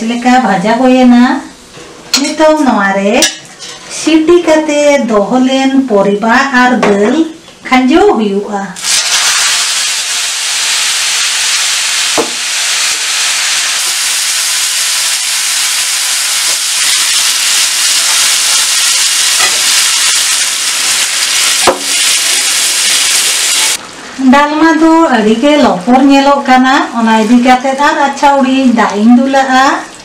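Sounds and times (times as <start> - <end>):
food sizzling in a pan: 8.8 - 23.8
metal ladle knocking a pan: 21.6 - 21.9.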